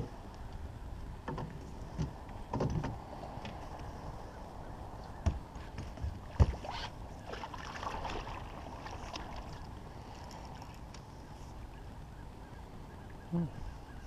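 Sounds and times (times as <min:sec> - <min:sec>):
fish splashing in water: 0:06.3 - 0:09.7.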